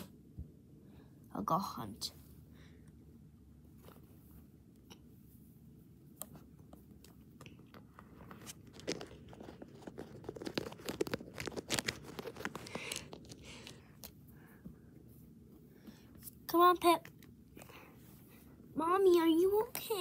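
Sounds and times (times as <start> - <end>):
plastic figurines clicking and scraping: 7.5 - 14.1.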